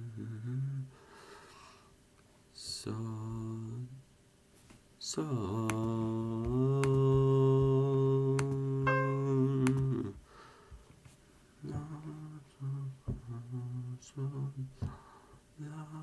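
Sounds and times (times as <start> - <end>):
brief higher pitched tone: 8.9 - 9.6.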